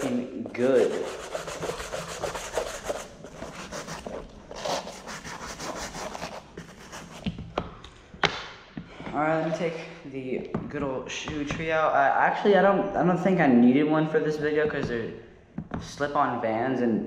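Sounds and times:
brush scrubbing canvas shoe: 0.5 - 7.2.

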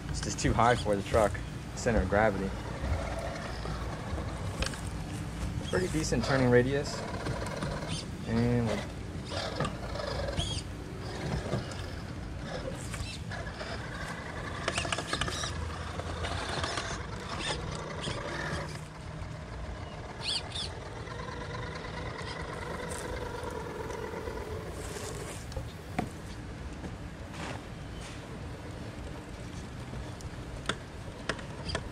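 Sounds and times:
electric motor whining: 1.9 - 25.9.

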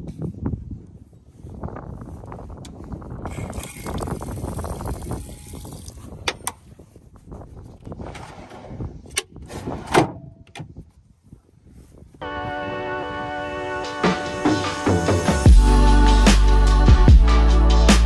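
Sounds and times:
faucet water running into sink: 3.3 - 6.0.

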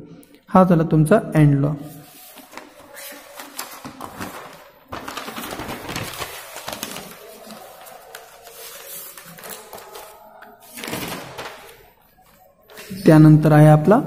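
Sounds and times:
paper rustling and crackling: 1.9 - 13.0.

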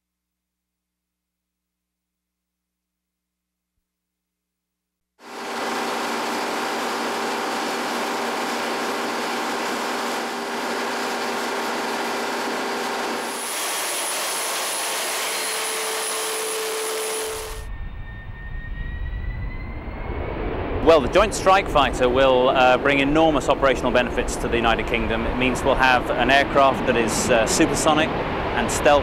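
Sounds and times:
jet engine roaring and whining: 5.2 - 13.8, 16.1 - 29.0.

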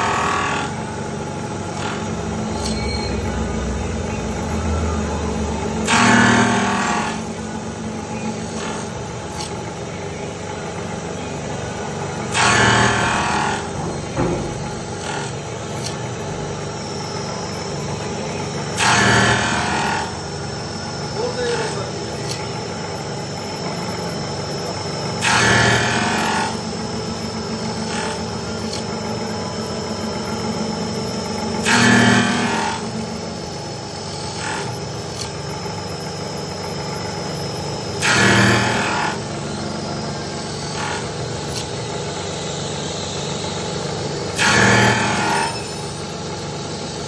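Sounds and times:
machine motor hum with whine: 0.0 - 47.0
machine loud burst: 5.8 - 7.2, 12.3 - 15.3, 18.6 - 20.1, 25.0 - 29.0, 29.6 - 34.8, 37.9 - 39.7, 44.2 - 45.9.

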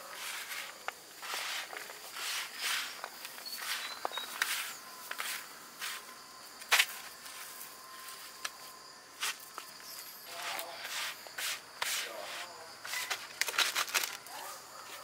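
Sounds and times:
handling scrapes and rustles: 0.0 - 8.4
faint steady background noise: 0.0 - 15.0.

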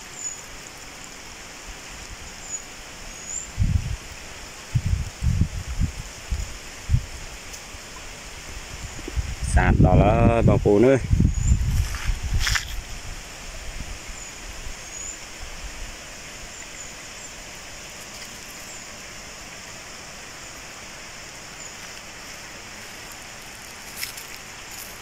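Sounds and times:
even hiss: 0.0 - 25.0
light crackles: 7.4 - 8.1, 17.4 - 19.9, 21.3 - 25.0.

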